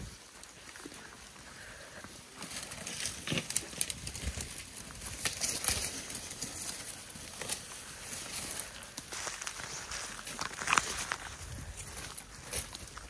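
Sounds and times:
dry bush crackling and rustling: 0.0s - 13.0s
twigs snapping: 2.3s - 13.0s.

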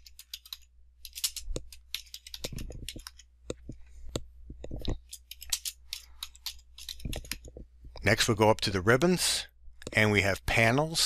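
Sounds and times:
keyboard typing: 0.0s - 7.6s.

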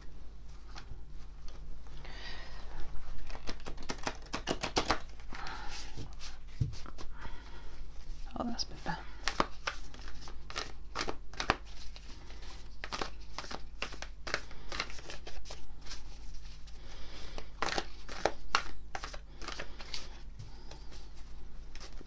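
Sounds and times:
cards being shuffled: 2.7s - 7.1s, 9.1s - 22.0s.

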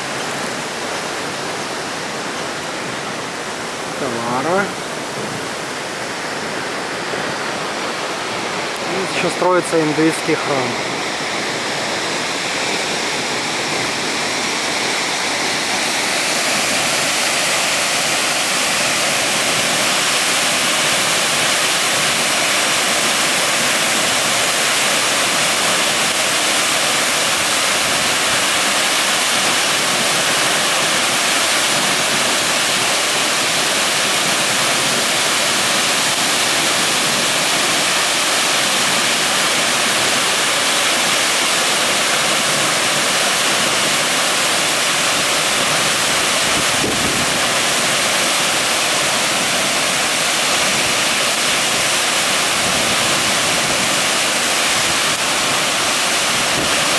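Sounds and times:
waterfall rushing: 0.0s - 56.9s.

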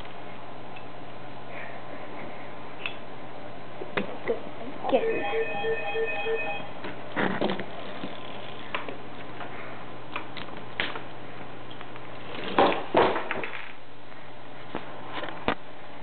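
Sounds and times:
electronic beeps: 5.0s - 6.7s.

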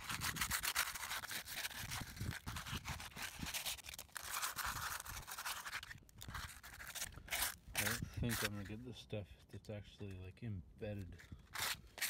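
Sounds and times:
sandpaper scratching back and forth: 0.0s - 8.8s, 11.5s - 12.0s.

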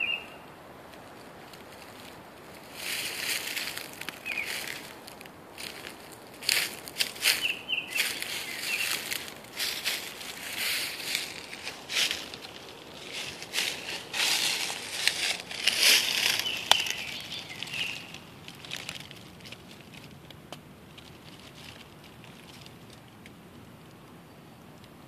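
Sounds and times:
bird chirping: 0.0s - 0.5s, 4.2s - 4.9s, 7.1s - 18.4s
dry leaves rustling and crackling: 0.9s - 23.3s.

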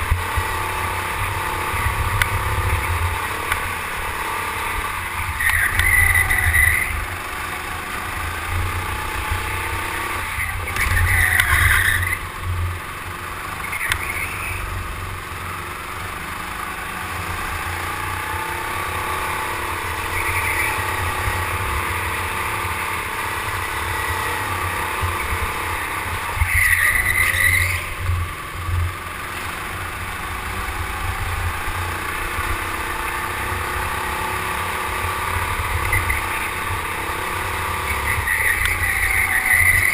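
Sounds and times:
go-kart motor drone: 0.0s - 39.9s
tyres squealing: 35.8s - 39.9s.

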